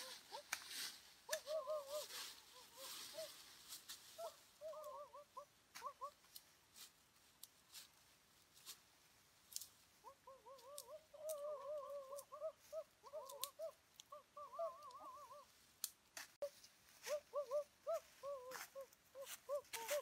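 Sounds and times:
bird calling: 0:00.0 - 0:00.6, 0:01.3 - 0:06.3, 0:09.9 - 0:15.6, 0:16.4 - 0:20.0
dry leaves and twigs crackling: 0:00.0 - 0:20.0.

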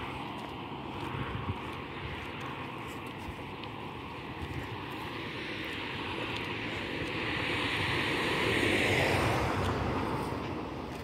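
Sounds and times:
vehicle passing by: 0:00.0 - 0:11.0.

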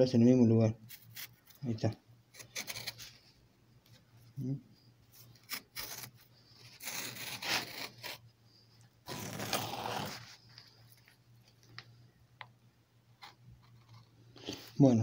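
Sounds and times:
leather scraping through cutter blade: 0:09.1 - 0:10.2.

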